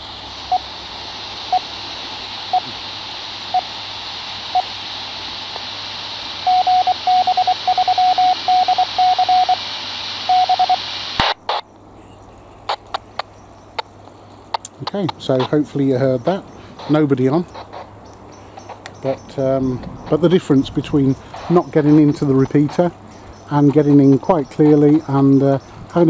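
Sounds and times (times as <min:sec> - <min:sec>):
radio hiss: 0:00.0 - 0:26.0
morse code tones: 0:06.4 - 0:09.6, 0:10.3 - 0:10.9.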